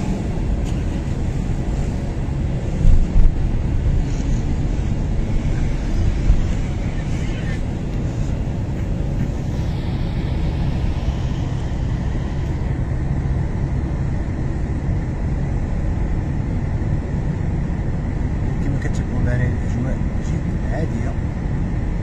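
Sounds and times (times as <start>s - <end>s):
passing car traffic rumble: 0.0s - 22.0s.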